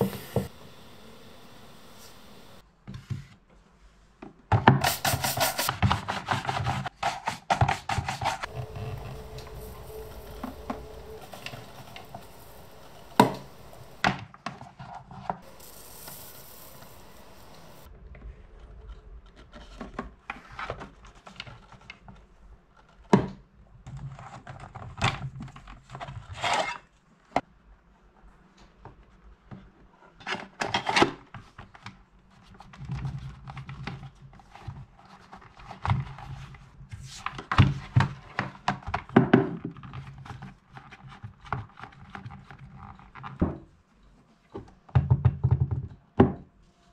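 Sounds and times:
brush rubbing on leather: 4.8 - 6.8.

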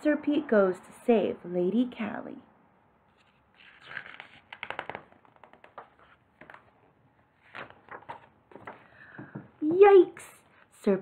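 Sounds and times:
paper pages rustling: 3.1 - 9.0.

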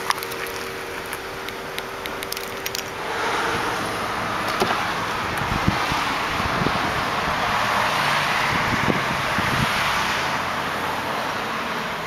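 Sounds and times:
car door opening thump: 4.4 - 4.8
wind on microphone: 4.6 - 10.3.

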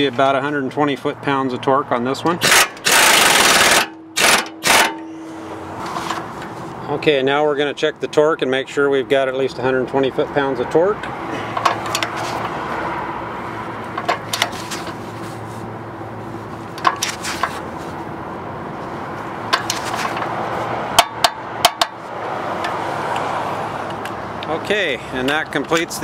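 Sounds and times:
torque wrench clicking: 2.4 - 5.0.

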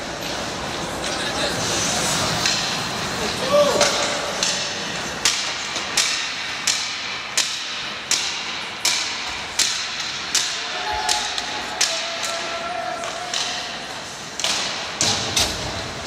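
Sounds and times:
echoing sharp knocks: 3.8 - 12.4.

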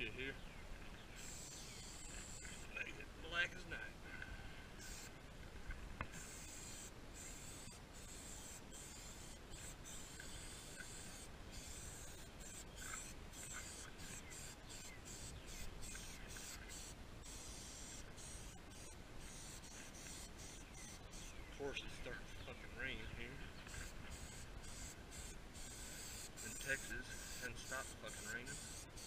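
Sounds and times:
aerosol spray can hissing: 1.2 - 2.6, 4.8 - 5.1, 6.1 - 21.3, 23.7 - 29.0.

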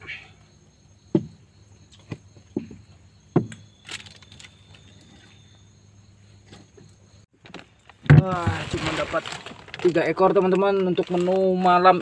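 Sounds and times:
high insect trill: 0.0 - 12.0
knocks against boat hull: 1.1 - 1.4, 2.1 - 3.6.

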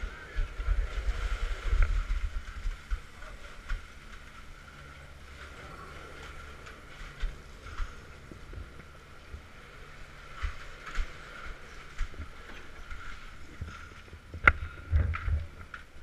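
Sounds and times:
chairlift whine and rumble: 0.0 - 16.0.

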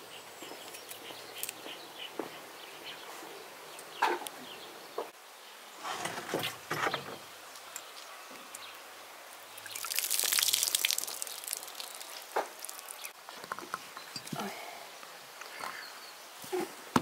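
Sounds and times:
water poured from plastic jug: 9.6 - 13.1
water splashing onto soil: 9.6 - 13.2.

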